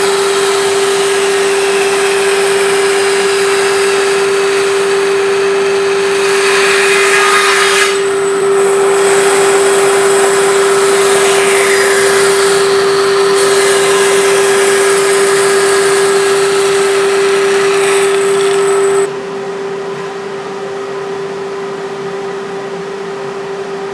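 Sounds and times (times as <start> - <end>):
bandsaw running: 0.0 - 19.1
saw blade cutting wood: 0.0 - 19.1.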